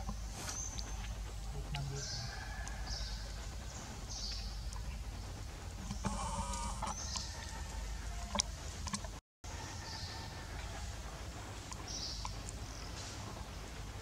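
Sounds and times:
pitched animal call: 6.0s - 7.0s.

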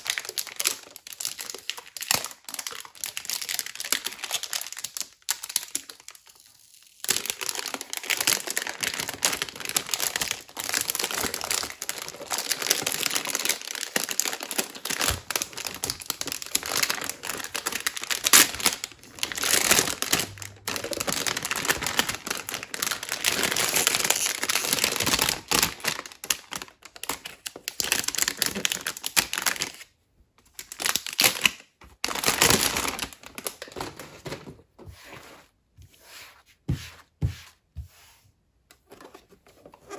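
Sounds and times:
plastic bag crinkling: 7.0s - 29.8s, 30.6s - 34.6s.

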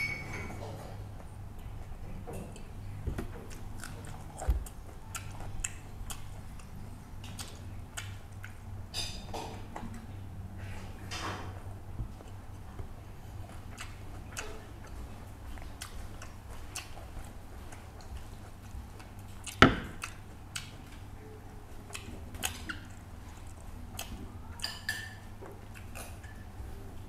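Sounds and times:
steady low hum: 0.0s - 27.0s
wet chewing smacks: 3.5s - 8.6s, 13.4s - 21.0s.

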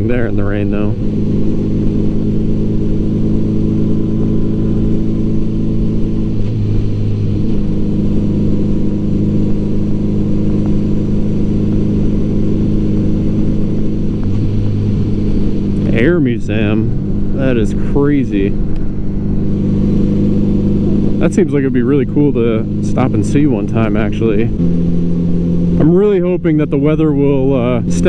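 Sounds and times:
motorcycle engine running: 0.0s - 28.0s.

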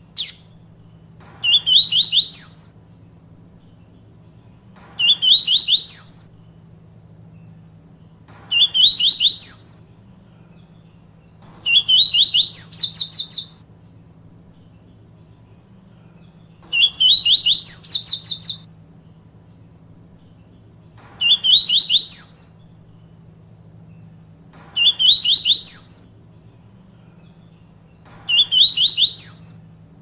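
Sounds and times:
bird whistling and trilling: 0.0s - 0.6s, 1.4s - 2.7s, 5.0s - 6.3s, 8.5s - 9.8s, 11.6s - 13.6s, 16.7s - 18.7s, 21.2s - 22.5s, 24.8s - 26.0s, 28.3s - 29.5s.

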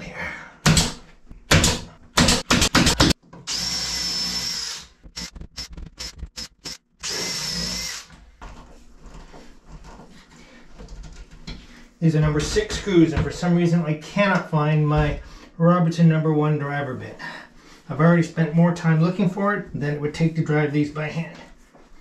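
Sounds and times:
pneumatic nailer firing: 0.6s - 8.1s
power tool whining: 2.6s - 8.1s.

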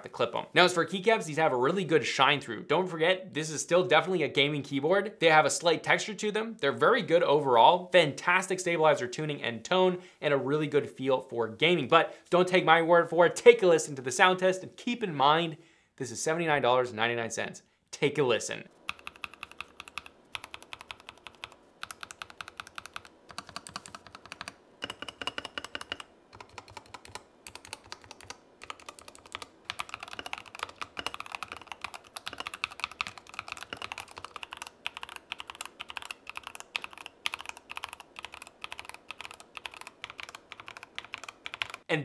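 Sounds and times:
mechanical keyboard typing: 18.9s - 41.9s.

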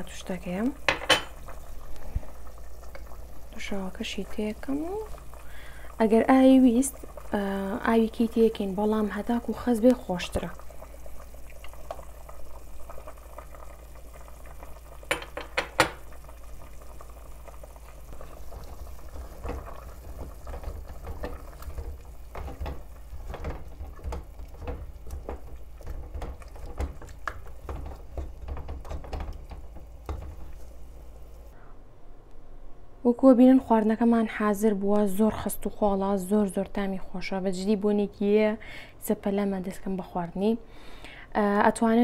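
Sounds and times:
spoon knocking on pot: 15.1s - 16.0s, 19.4s - 30.5s
spoon stirring simmering stew: 18.2s - 31.0s.

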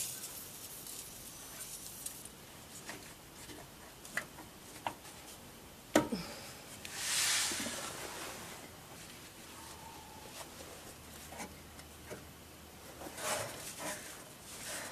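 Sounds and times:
short hiss: 6.9s - 8.4s.

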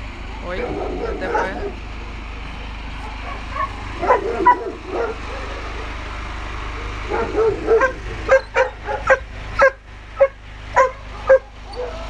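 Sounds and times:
dog barking sharply: 3.0s - 5.8s, 6.8s - 12.0s
dog whining yelps: 3.0s - 5.9s, 6.9s - 12.0s.

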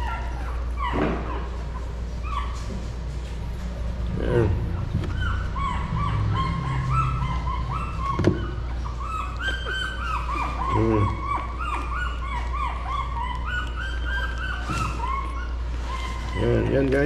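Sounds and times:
puppies whimpering: 0.0s - 17.0s.

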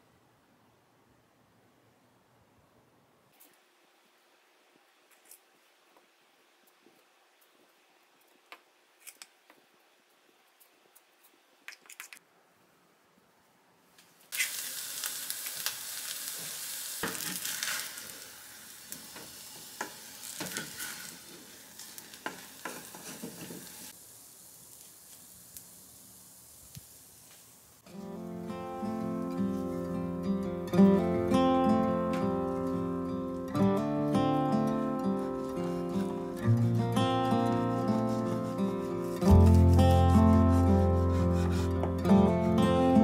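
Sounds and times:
food sizzling in hot oil: 14.3s - 28.2s.

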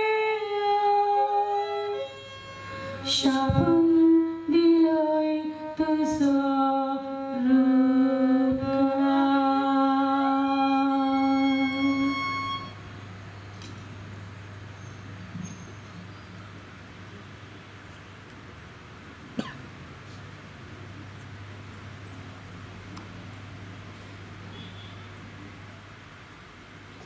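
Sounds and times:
woman singing slow lament: 0.0s - 2.2s, 3.0s - 12.6s.

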